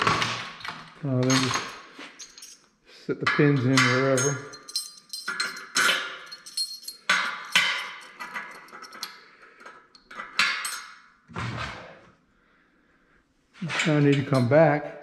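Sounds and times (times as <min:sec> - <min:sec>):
steel pins clinking on metal: 0:00.6 - 0:02.7, 0:03.3 - 0:11.1, 0:13.6 - 0:14.7.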